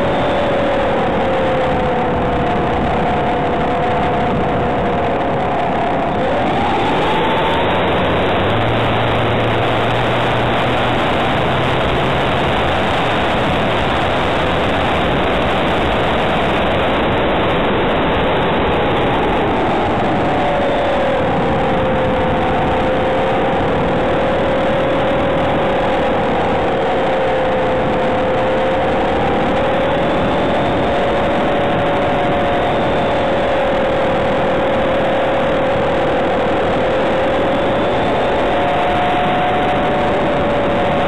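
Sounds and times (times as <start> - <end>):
motor whine: 0.0 - 41.0.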